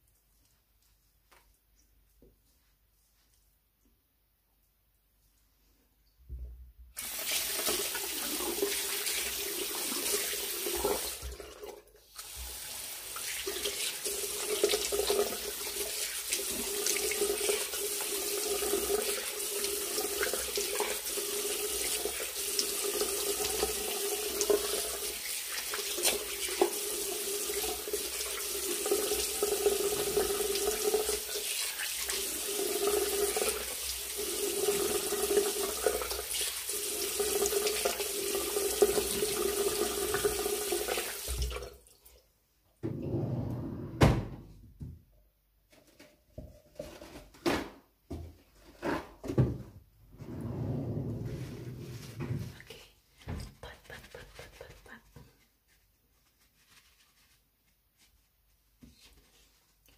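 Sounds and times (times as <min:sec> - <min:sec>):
tap water running into sink: 0:07.0 - 0:41.9.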